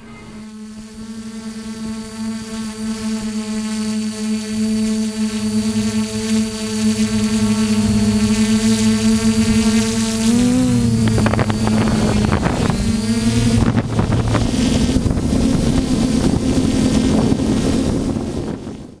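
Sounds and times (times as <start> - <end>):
drone motors and propellers whining: 0.0 - 19.0
wind noise on microphone: 6.9 - 19.0.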